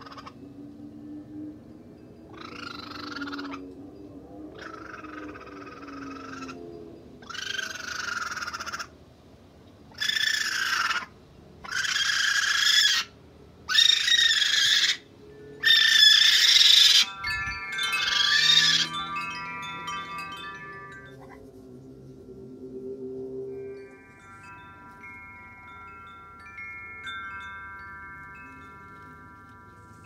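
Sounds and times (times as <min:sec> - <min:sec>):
chime-like ringing tones: 0:15.1 - 0:30.0
raccoon kits chirping: 0:15.6 - 0:19.1.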